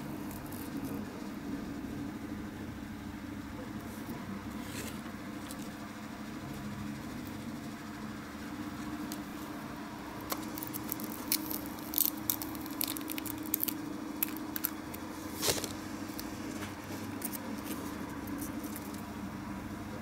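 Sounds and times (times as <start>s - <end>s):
steady low hum: 0.0s - 20.0s
resin casting crackling and clicking: 8.6s - 9.6s, 10.2s - 19.1s.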